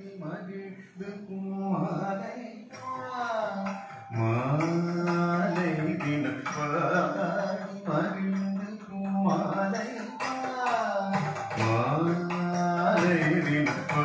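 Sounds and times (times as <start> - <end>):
person singing sliding notes: 2.7 - 14.0.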